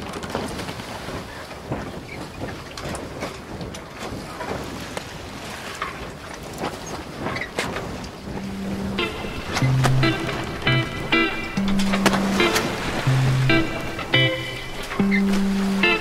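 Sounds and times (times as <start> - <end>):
water sloshing and lapping: 0.0 - 16.0
wind noise on microphone: 0.2 - 16.0.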